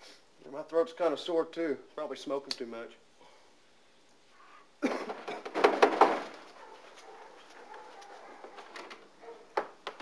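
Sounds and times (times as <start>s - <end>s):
man coughing harshly: 4.8s - 5.4s.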